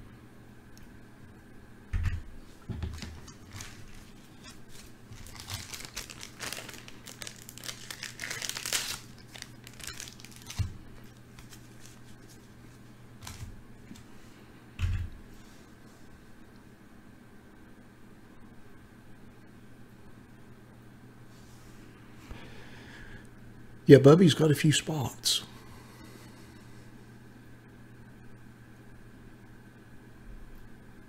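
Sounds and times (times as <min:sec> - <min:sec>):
crinkling and rustling: 0:02.5 - 0:14.1.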